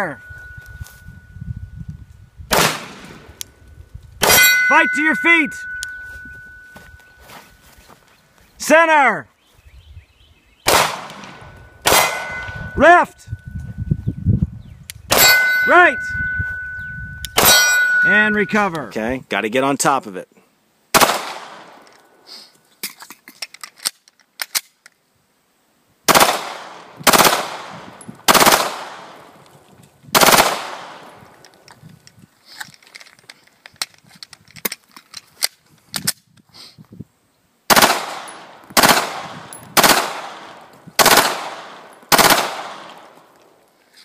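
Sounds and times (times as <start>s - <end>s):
pistol shots with echo: 2.5s - 3.3s, 4.2s - 6.0s, 10.6s - 12.8s, 15.1s - 16.8s, 17.4s - 18.4s, 20.9s - 21.8s, 26.1s - 29.3s, 30.2s - 31.2s, 37.7s - 43.2s
pistol handling clicks: 22.8s - 25.0s.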